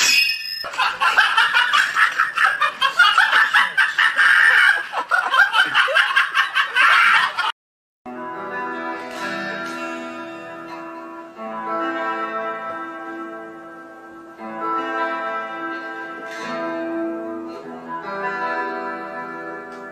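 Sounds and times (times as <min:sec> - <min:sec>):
electric guitar sustained notes: 0:08.1 - 0:19.9.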